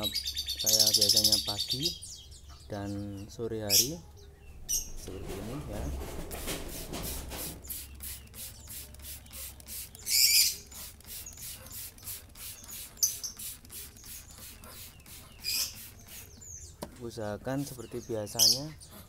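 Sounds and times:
spray bottle hissing: 6.3 - 16.6
bird squeaking and clicking: 7.6 - 17.0.

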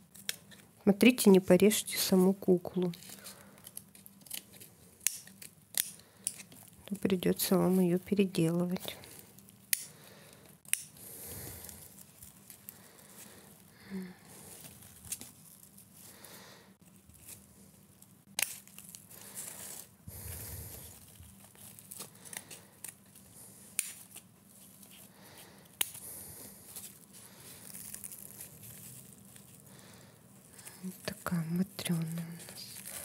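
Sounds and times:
rustling and tearing: 2.1 - 33.0
scissors snipping: 3.6 - 6.5, 10.6 - 11.0, 18.4 - 18.7, 25.8 - 26.0.

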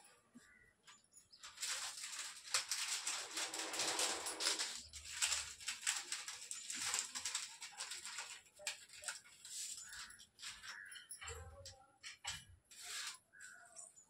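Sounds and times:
wrapping rustling and crinkling: 0.4 - 13.8.

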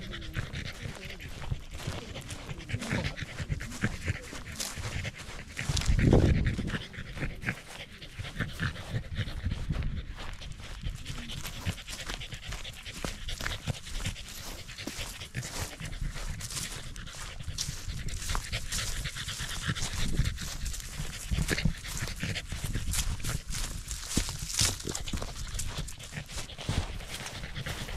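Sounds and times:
dog panting: 0.0 - 27.9
footsteps in dry grass: 0.0 - 27.9.

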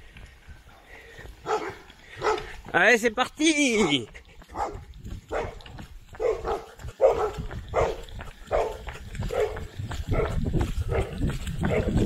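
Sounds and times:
dog barking: 1.4 - 2.6, 4.5 - 5.6, 6.2 - 12.0.

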